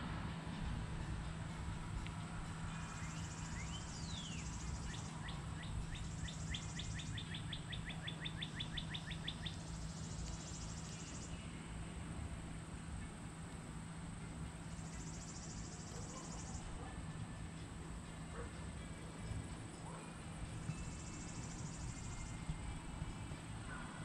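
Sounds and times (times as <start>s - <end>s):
low steady hum: 0.0s - 24.0s
insects buzzing: 1.4s - 23.8s
songbird chirping: 2.0s - 11.8s, 14.6s - 24.0s.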